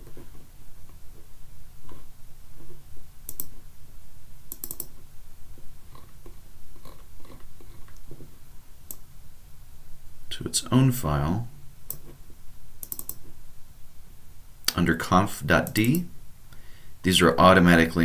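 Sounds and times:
low steady hum: 0:00.0 - 0:18.0
computer mouse clicking: 0:03.3 - 0:03.6, 0:04.5 - 0:05.0, 0:11.9 - 0:12.2, 0:12.8 - 0:13.3.

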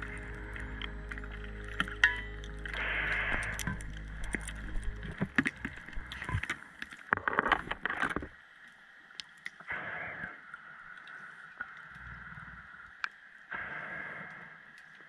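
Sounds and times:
low steady hum: 0:00.0 - 0:06.8
underwater bubbles gurgling: 0:00.0 - 0:08.4.

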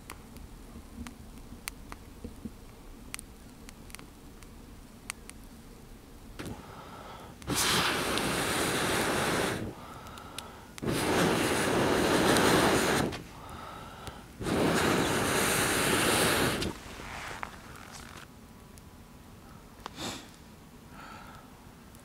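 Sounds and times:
breath intakes: 0:09.5 - 0:10.8, 0:13.2 - 0:14.4.

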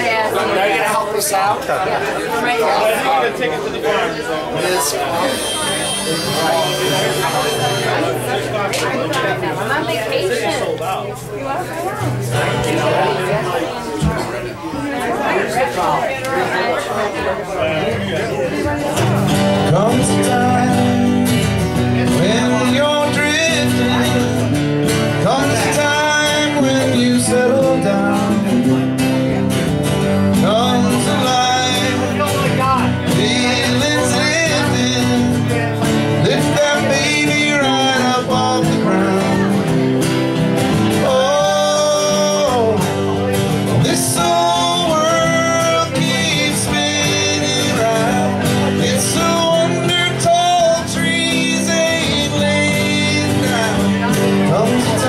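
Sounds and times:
acoustic guitars playing: 0:00.0 - 0:55.0
person singing: 0:30.4 - 0:40.0, 0:40.7 - 0:55.0.

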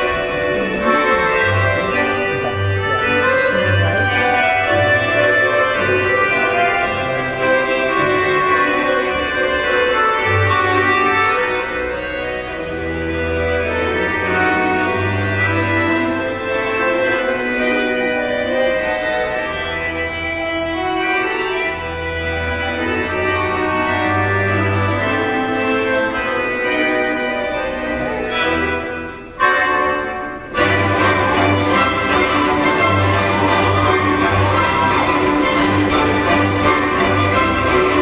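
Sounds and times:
reedy melody notes: 0:00.0 - 0:38.0.

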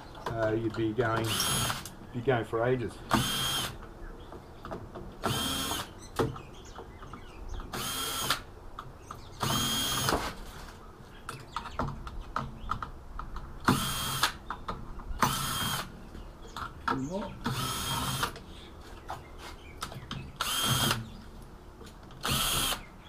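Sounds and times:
cordless drill motor whine: 0:03.2 - 0:03.8, 0:05.3 - 0:05.9, 0:07.7 - 0:08.4, 0:09.4 - 0:10.2, 0:13.7 - 0:14.3, 0:15.2 - 0:15.9, 0:17.5 - 0:18.3, 0:20.4 - 0:21.0, 0:22.2 - 0:22.8.

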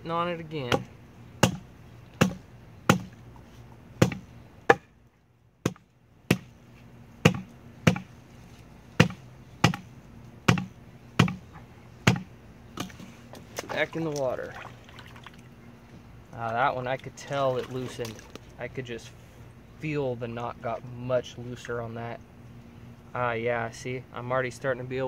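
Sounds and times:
wood block hammering a strap knot: 0:00.7 - 0:01.6, 0:02.2 - 0:03.2, 0:04.0 - 0:04.9, 0:05.6 - 0:06.6, 0:07.2 - 0:08.1, 0:09.0 - 0:09.9, 0:10.5 - 0:11.4, 0:12.0 - 0:12.9.

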